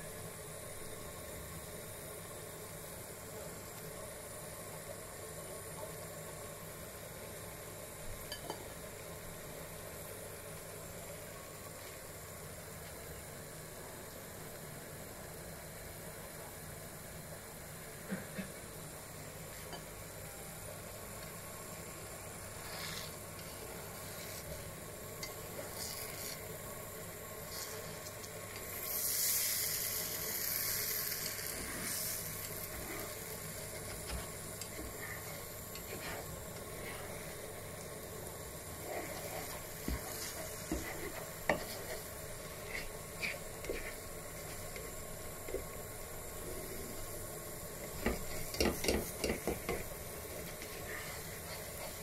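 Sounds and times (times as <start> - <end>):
omelette sizzling in frying pan: 16.8 - 52.0.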